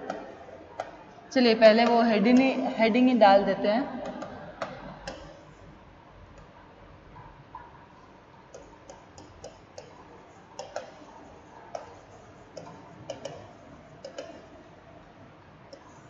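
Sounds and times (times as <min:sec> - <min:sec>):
stylus tapping writing tablet: 0:08.5 - 0:14.6.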